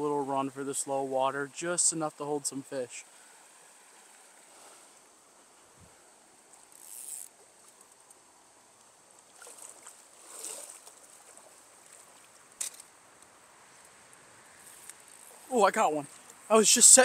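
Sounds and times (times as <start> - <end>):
stream running faintly: 0.0 - 17.0.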